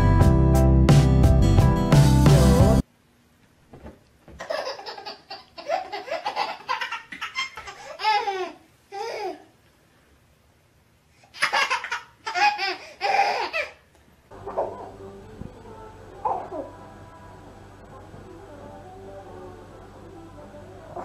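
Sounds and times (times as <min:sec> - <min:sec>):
baby laughing: 0:04.4 - 0:09.5, 0:11.2 - 0:13.8.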